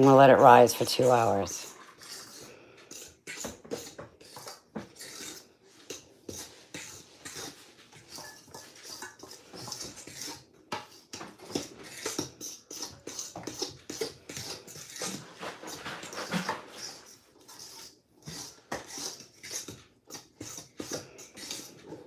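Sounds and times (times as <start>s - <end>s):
dough scraping in metal bowl: 0.0s - 22.0s.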